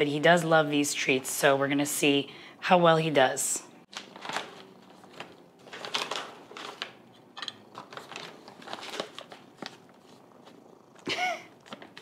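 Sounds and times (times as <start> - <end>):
treat pouch crinkling: 3.9 - 7.0, 7.6 - 10.2.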